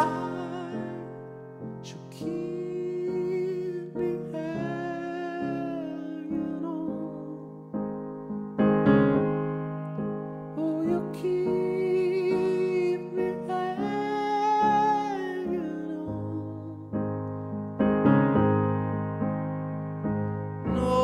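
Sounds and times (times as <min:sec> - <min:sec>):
wordless male vocal: 0:00.0 - 0:07.5, 0:10.6 - 0:17.0, 0:20.7 - 0:21.0
piano chords: 0:00.0 - 0:21.0.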